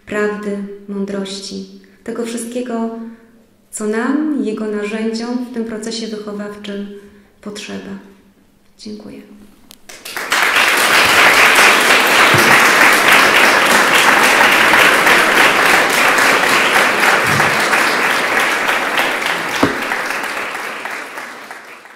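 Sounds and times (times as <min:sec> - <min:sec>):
audience applauding: 0:09.9 - 0:21.9
single thump: 0:19.6 - 0:20.0.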